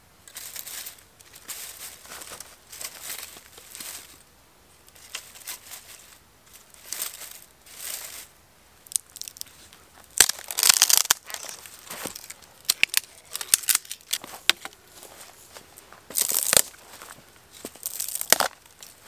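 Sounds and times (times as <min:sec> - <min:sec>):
dry brush rustling: 0:00.0 - 0:19.0
twigs cracking and snapping: 0:08.9 - 0:14.8, 0:16.1 - 0:17.0, 0:17.6 - 0:19.0.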